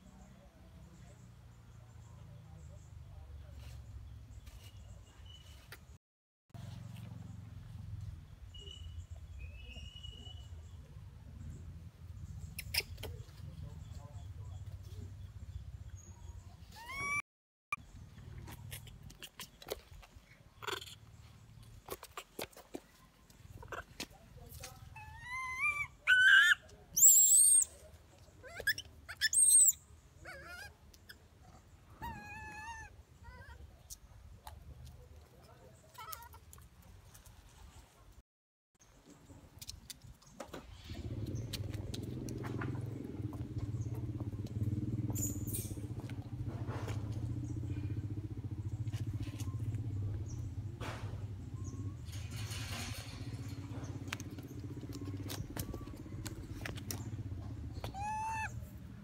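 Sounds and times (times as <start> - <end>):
baby monkey shrill screams: 16.7 - 17.2, 25.0 - 27.8, 28.4 - 30.7, 32.0 - 33.6, 57.8 - 58.6
baby monkey wailing: 16.8 - 17.2, 20.6 - 21.0, 25.0 - 27.7, 28.4 - 30.7, 32.0 - 33.6, 57.8 - 58.7
small engine running: 40.8 - 58.1.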